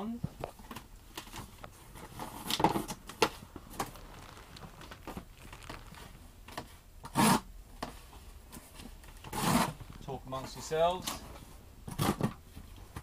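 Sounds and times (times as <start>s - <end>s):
cardboard flaps scraping and rustling: 1.2s - 7.4s
cardboard tearing: 2.0s - 6.3s, 9.3s - 9.8s.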